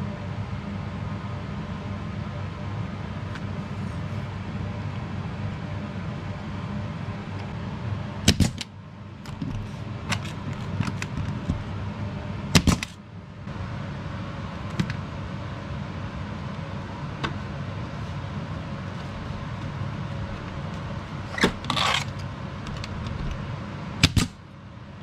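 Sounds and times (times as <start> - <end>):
steady low hum: 0.0 - 25.0
nail gun firing: 8.3 - 8.7, 12.6 - 13.0, 24.0 - 24.4.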